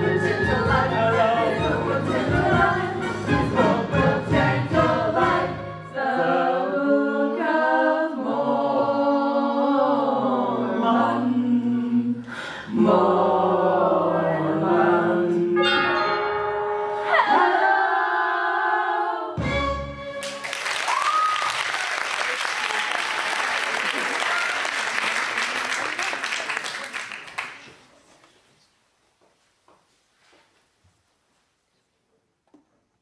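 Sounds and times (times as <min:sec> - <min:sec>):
ensemble singing together: 0:00.0 - 0:19.4.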